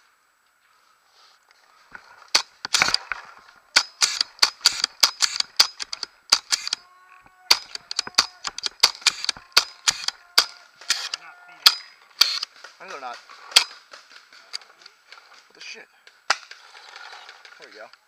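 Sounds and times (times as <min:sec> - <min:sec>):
paintball markers firing: 0:02.3 - 0:03.2, 0:03.8 - 0:06.8, 0:07.5 - 0:15.0.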